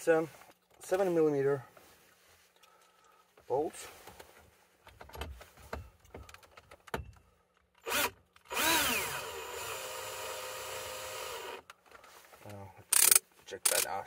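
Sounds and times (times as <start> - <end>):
cordless drill whining: 7.8 - 11.6
drill clicks: 7.8 - 11.8, 12.9 - 13.9.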